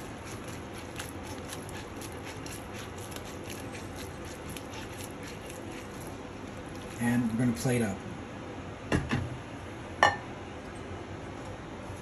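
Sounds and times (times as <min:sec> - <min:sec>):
steady low hiss: 0:05.1 - 0:12.0.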